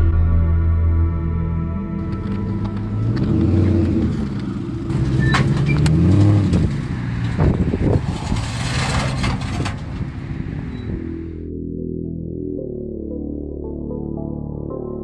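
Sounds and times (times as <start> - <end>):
vehicle engine running: 0.0 - 11.5.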